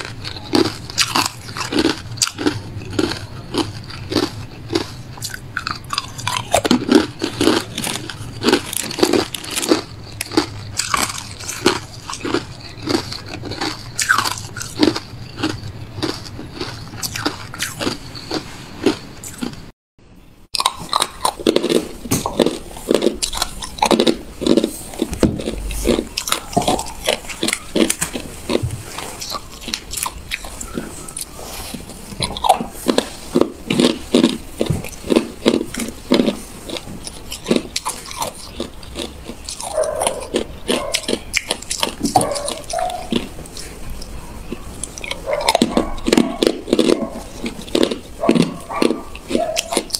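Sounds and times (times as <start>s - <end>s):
ice crunching while chewed: 0.0s - 19.7s, 20.6s - 49.9s.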